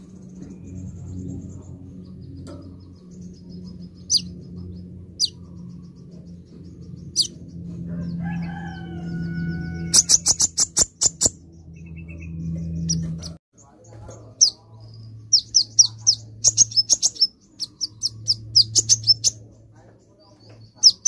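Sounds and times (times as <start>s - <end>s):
low steady hum: 0.0s - 20.8s
rooster crowing: 7.8s - 10.4s.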